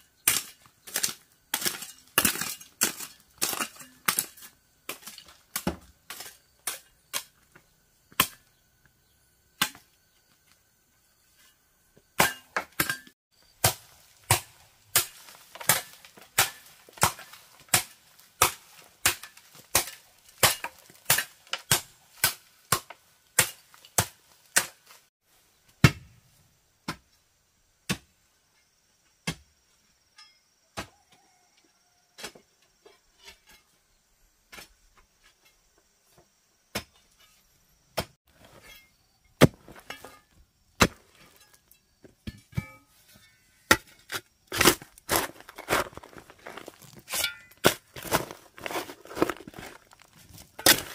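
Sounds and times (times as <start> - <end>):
hand tool striking bamboo: 12.2 - 25.0, 42.2 - 50.9.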